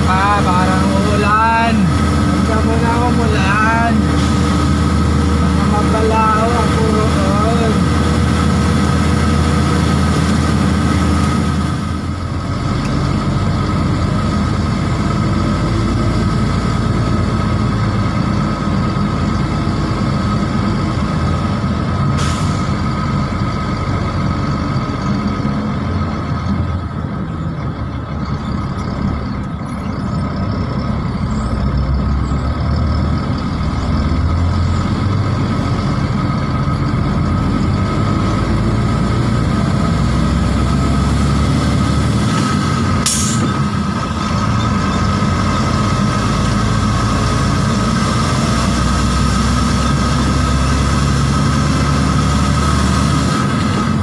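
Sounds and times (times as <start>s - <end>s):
diesel truck engine running: 0.0s - 54.0s
air brakes hissing: 22.2s - 22.8s, 43.0s - 43.6s.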